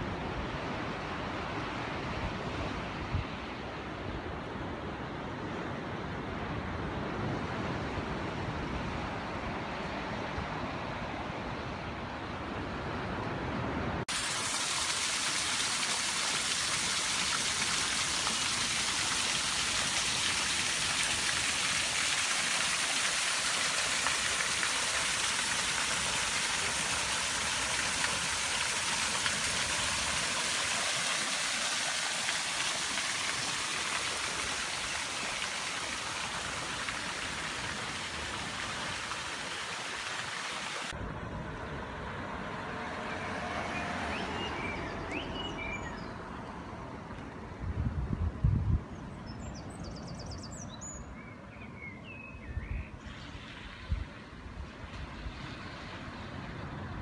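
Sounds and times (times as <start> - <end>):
water rushing and splashing: 12.8 - 46.0, 53.0 - 57.0.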